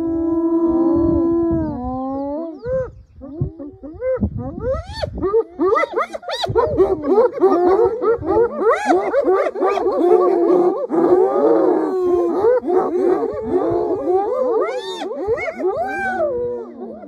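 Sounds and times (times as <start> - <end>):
hyenas squealing and giggling: 2.9 - 10.9.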